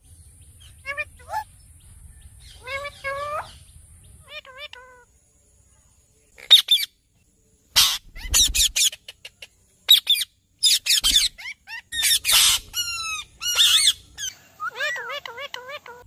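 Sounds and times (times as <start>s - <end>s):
parakeets squawking: 0.6s - 1.4s, 2.4s - 3.6s, 4.2s - 5.0s, 7.8s - 9.0s, 9.9s - 16.0s.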